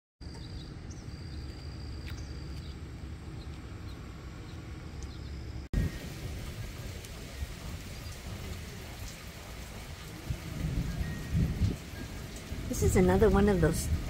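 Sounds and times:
steady low rumble: 0.6 - 14.0
steady falling rain: 5.8 - 14.0.

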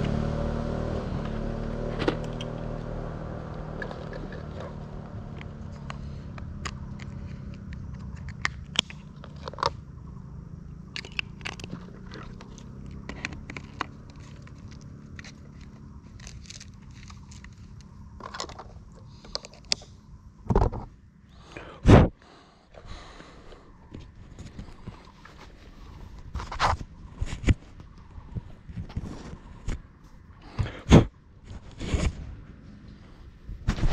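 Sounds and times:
low hum: 0.0 - 21.8
drone being handled bumps: 1.2 - 9.2.

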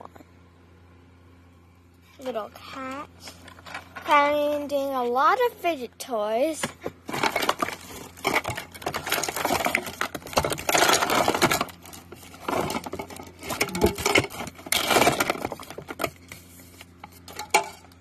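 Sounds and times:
plastic toys rattling: 2.2 - 5.4, 6.5 - 16.5, 17.1 - 18.0
paper rustling: 6.6 - 17.4.

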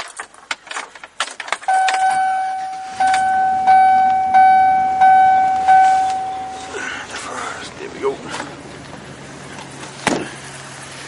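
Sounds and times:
clicks and rattles: 0.0 - 2.2
dashboard warning chime dinging: 1.7 - 7.1
low hum: 1.7 - 7.6.

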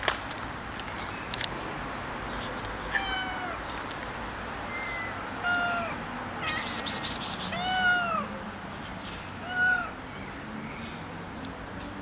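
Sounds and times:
cats meowing: 2.9 - 3.6, 4.7 - 8.4.

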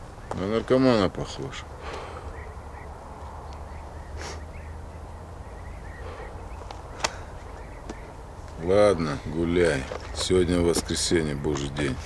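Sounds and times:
steady low hum: 0.0 - 9.6
faint bird chirps: 0.0 - 10.7
rustle: 3.1 - 5.4.

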